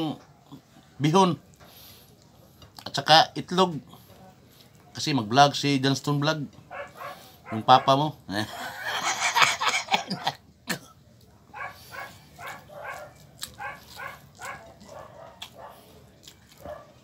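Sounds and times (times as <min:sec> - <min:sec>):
dog barking: 0:06.7 - 0:08.0, 0:11.5 - 0:17.0.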